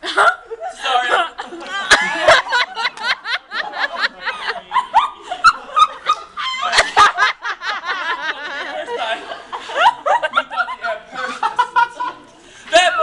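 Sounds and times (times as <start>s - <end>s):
group laughing: 0.0s - 13.0s
people shouting and yelping: 0.7s - 7.4s, 12.7s - 13.0s.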